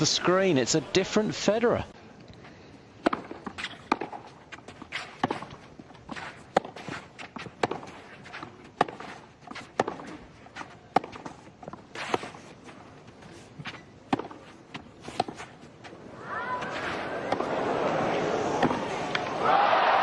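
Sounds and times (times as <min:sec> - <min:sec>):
racket hitting tennis ball: 0:03.0 - 0:16.0, 0:16.6 - 0:19.4.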